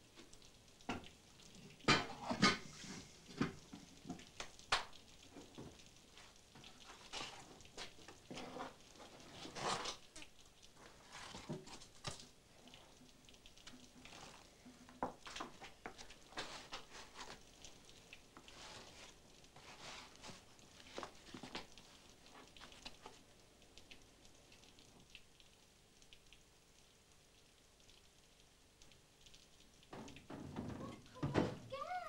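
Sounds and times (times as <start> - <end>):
dough worked by hand on table: 14.0 - 17.5, 18.4 - 21.7.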